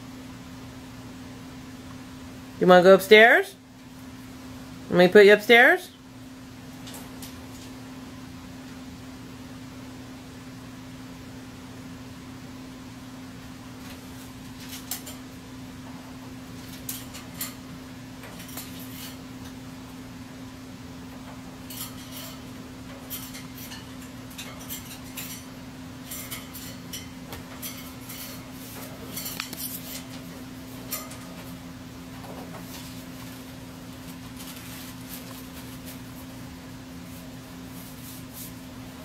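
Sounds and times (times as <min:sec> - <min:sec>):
parrot claws clinking on metal bars: 0:21.6 - 0:30.2, 0:30.8 - 0:31.4.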